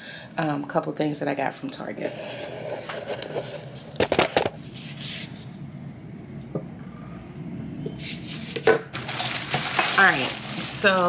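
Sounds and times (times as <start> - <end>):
grocery rustle: 8.0 - 11.0.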